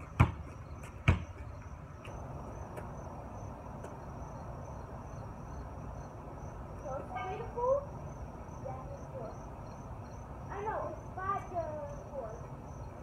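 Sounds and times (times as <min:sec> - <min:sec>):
insects trilling: 0:00.6 - 0:13.0.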